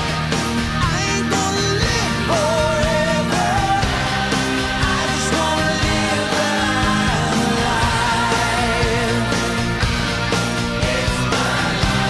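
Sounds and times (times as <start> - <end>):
pop-rock backing music: 0.0 - 12.0
person singing with vibrato: 0.8 - 9.8.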